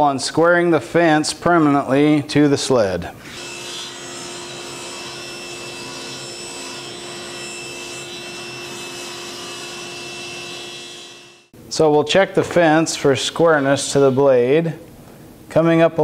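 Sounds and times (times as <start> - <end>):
table saw motor running: 3.2 - 11.5.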